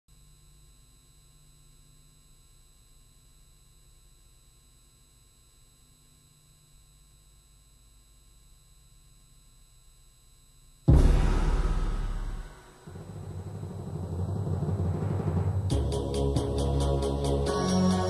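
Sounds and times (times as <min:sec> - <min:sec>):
faint steady hum and hiss: 0:00.1 - 0:10.9.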